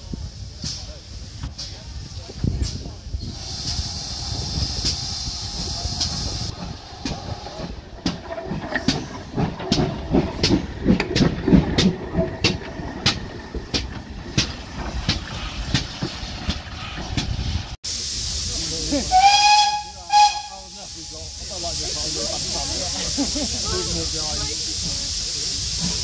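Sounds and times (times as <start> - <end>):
steam hissing: 0.0 - 26.0
locomotive wheels clanking: 0.7 - 17.8.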